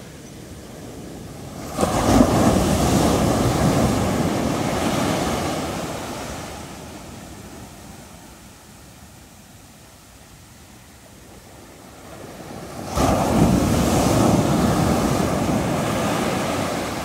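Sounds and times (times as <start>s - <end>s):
sea wave crashing: 1.5s - 7.1s, 12.4s - 17.0s.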